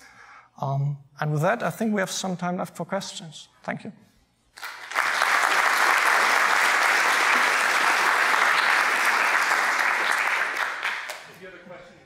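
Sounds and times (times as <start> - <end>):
audience applauding: 4.6 - 11.4.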